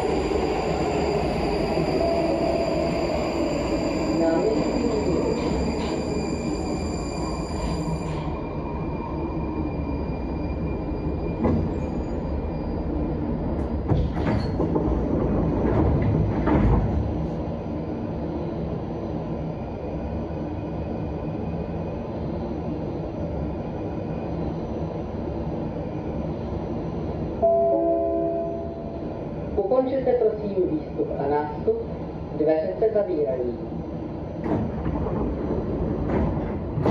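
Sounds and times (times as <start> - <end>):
train high whine: 0.0 - 13.9, 17.8 - 30.5
standing train hum: 0.0 - 36.9
train doors opening: 0.5 - 8.5, 11.0 - 17.5, 34.3 - 36.9
clunks: 13.6 - 17.3.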